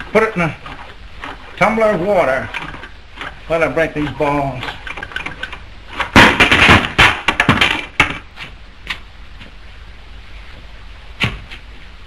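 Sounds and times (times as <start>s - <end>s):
billiard balls clattering: 0.0s - 8.3s.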